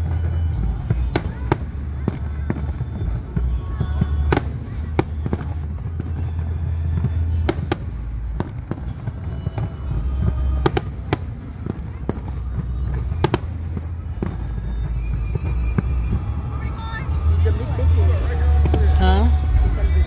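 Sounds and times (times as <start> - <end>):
fireworks cracking and banging: 0.0 - 20.0
steady low rumble: 0.0 - 20.0.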